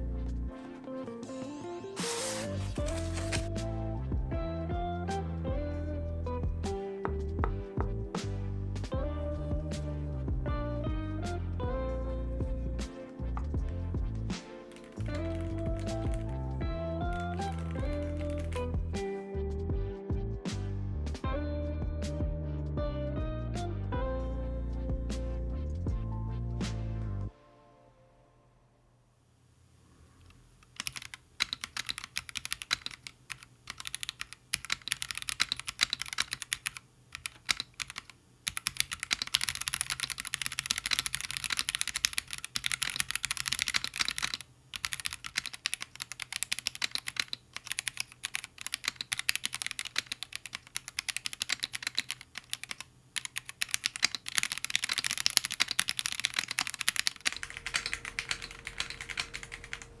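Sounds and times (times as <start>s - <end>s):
faint steady hum: 27.3s - 60.0s
mechanical keyboard key clacks: 30.8s - 59.9s.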